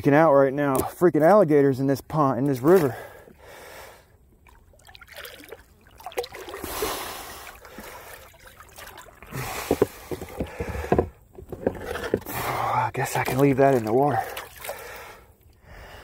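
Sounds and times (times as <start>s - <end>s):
water sloshing around wading person: 4.3s - 15.5s.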